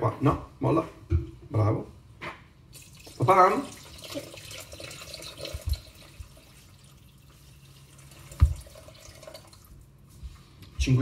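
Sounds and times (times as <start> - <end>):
water trickling into bowl: 2.8 - 9.7.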